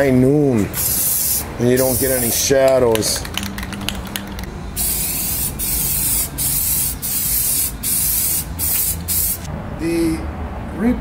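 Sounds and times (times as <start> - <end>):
spray paint hissing: 0.8 - 2.5, 3.2 - 9.5.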